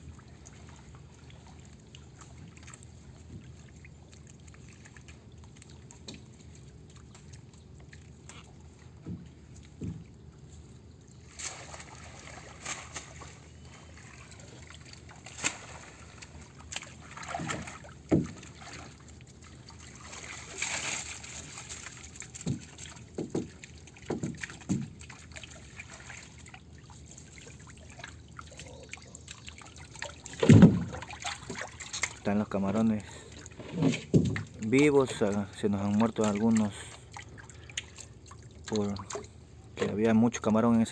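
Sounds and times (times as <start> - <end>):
water dripping and sloshing: 0.0 - 40.9
knocks and thumps on boat hull: 9.0 - 10.1, 17.4 - 18.4, 22.4 - 25.0, 30.4 - 31.6, 33.6 - 34.6
water splash: 11.3 - 32.3.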